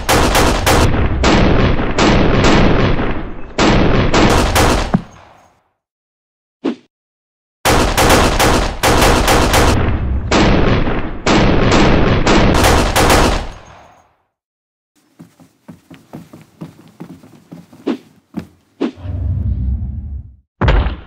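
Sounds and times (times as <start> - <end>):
rapid gunshot bursts: 0.0 - 5.2, 7.7 - 13.8.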